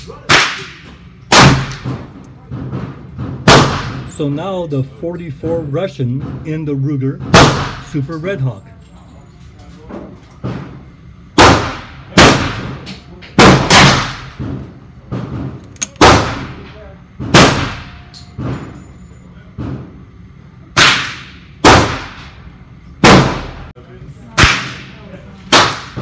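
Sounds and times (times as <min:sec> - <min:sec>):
handgun shots echoing indoors: 0:00.3 - 0:02.0, 0:03.4 - 0:04.2, 0:11.4 - 0:14.4, 0:15.7 - 0:16.6, 0:23.0 - 0:23.7, 0:24.4 - 0:26.0.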